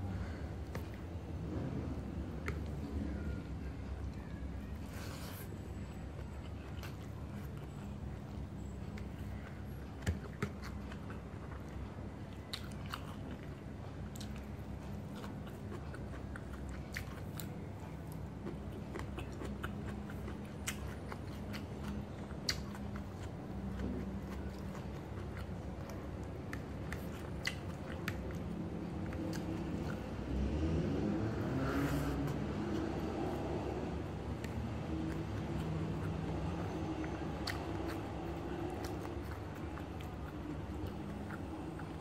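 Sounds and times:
low background hum: 0:00.0 - 0:42.0
chewing and eating mouth noises: 0:00.2 - 0:42.0
mouth smacks and clicks: 0:18.4 - 0:30.1, 0:34.2 - 0:42.0.

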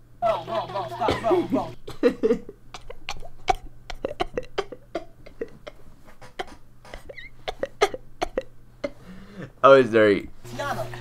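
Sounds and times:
man laughing hard: 0:00.2 - 0:05.8.

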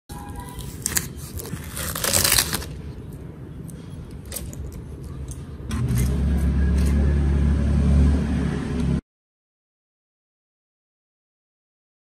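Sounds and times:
thin sheet crinkling: 0:00.1 - 0:03.2
loud steady low rumble: 0:05.4 - 0:09.0.

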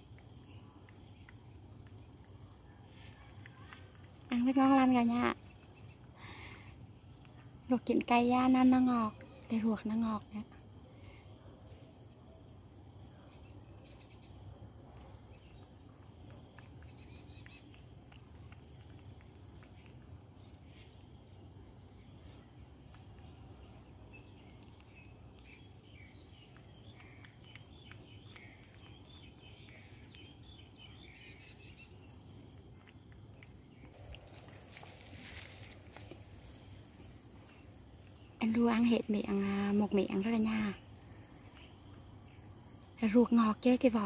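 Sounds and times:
high insect trill: 0:00.0 - 0:44.0
faint small clicks: 0:26.4 - 0:30.3.

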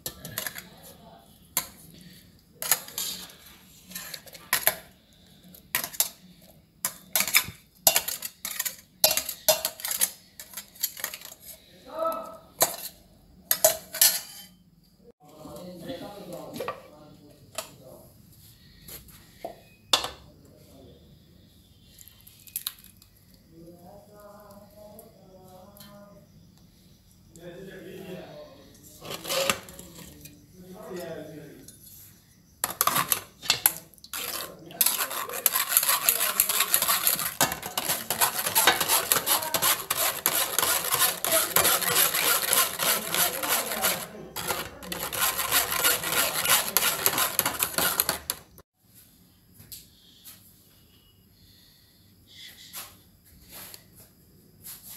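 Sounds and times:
spoon scraping a mesh strainer: 0:02.6 - 0:04.8, 0:06.8 - 0:11.6, 0:29.0 - 0:30.0, 0:32.6 - 0:33.3, 0:34.1 - 0:48.6.

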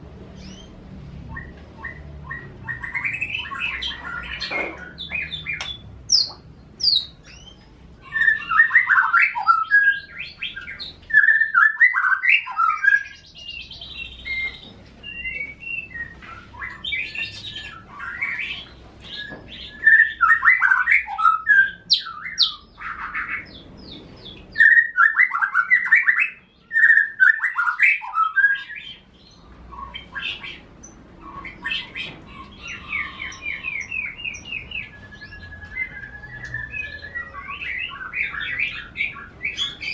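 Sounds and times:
caged songbirds singing: 0:00.0 - 0:39.9
rapid bird trill: 0:00.4 - 0:23.6.

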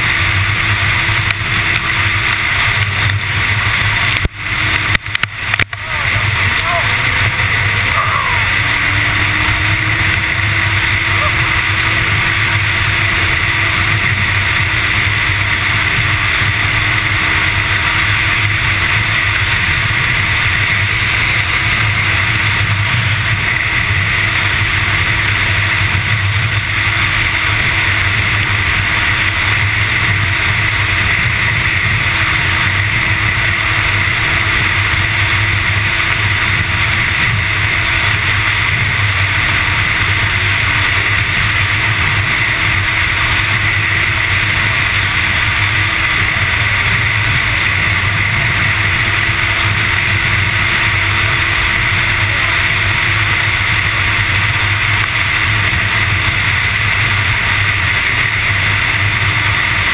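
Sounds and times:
rush of wind: 0:00.0 - 0:59.9
snowmobile engine drone: 0:00.0 - 0:59.9.

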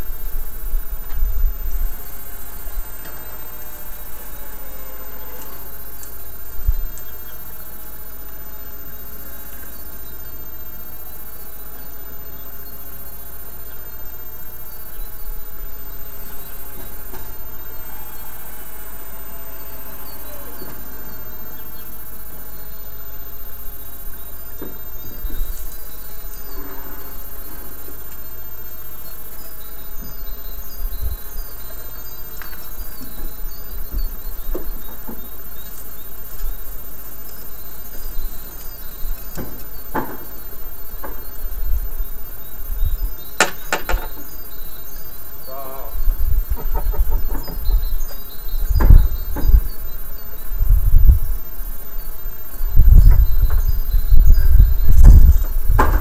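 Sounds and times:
outdoor background noise: 0:00.0 - 0:56.0
low thumps: 0:46.2 - 0:51.4.

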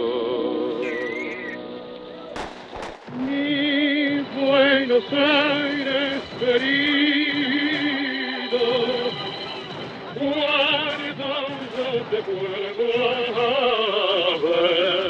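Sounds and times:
musical accompaniment: 0:00.0 - 0:15.0
sharp bangs: 0:02.2 - 0:06.8
person singing a tango: 0:03.1 - 0:09.2.

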